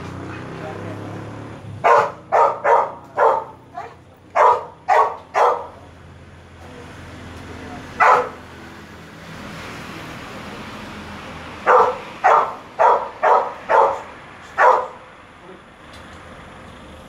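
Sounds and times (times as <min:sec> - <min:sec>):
dog barking: 0:01.8 - 0:05.8, 0:08.0 - 0:08.4, 0:11.6 - 0:15.1.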